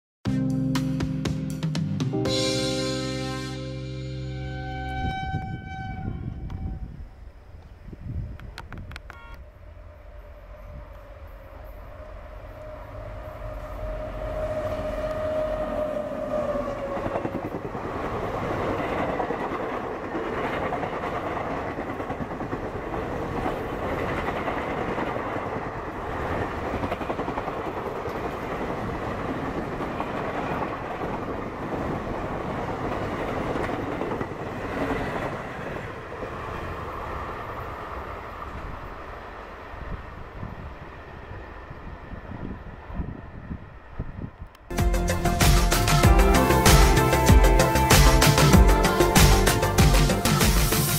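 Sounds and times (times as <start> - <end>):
train rushing past: 2.1 - 8.3, 9.4 - 50.9
train horn: 2.4 - 7.2, 9.1 - 9.6, 12.6 - 17.4.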